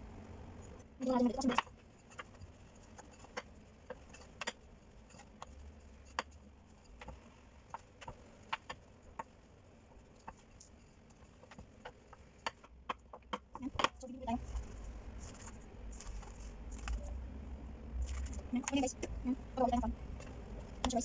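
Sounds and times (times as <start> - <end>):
rolling pin tapping on board: 3.0 - 4.6, 11.4 - 14.0.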